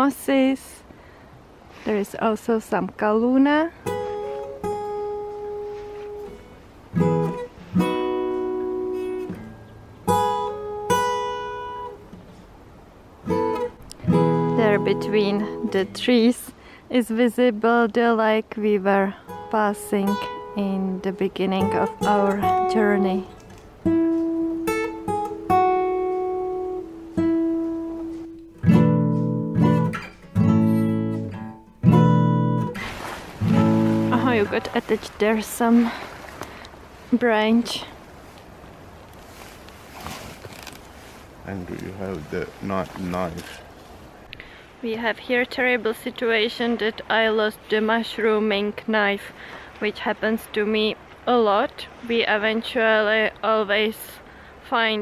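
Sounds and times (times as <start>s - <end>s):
acoustic guitar chords ringing: 3.8s - 16.2s, 19.2s - 36.0s.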